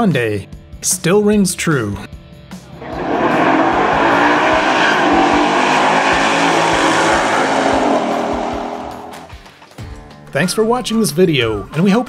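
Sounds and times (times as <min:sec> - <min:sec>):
race car engine at full throttle: 0:02.6 - 0:09.4.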